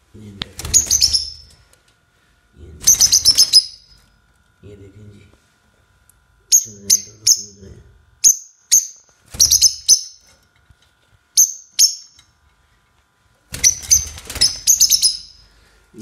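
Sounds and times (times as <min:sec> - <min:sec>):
lovebirds chirping shrilly: 0:00.6 - 0:01.5, 0:02.8 - 0:04.0, 0:08.2 - 0:10.3, 0:11.4 - 0:12.2, 0:13.5 - 0:15.5.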